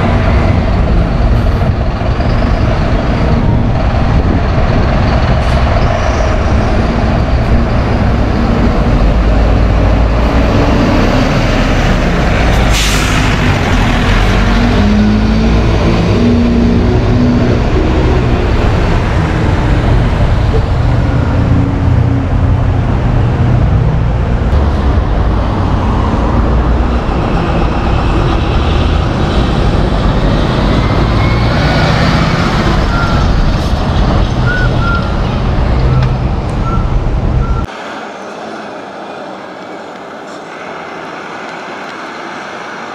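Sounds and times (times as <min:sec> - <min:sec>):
bus engines running: 0:00.0 - 0:42.9
street traffic: 0:00.0 - 0:42.9
air brake hiss: 0:12.6 - 0:13.3.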